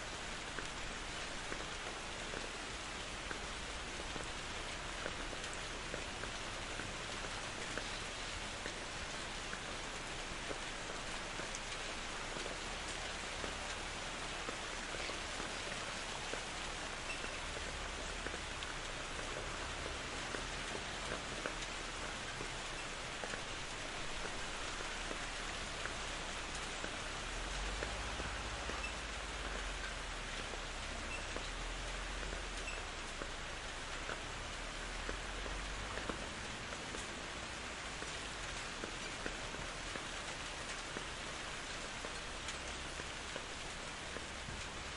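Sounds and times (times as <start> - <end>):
steady rain falling: 0.0 - 44.9.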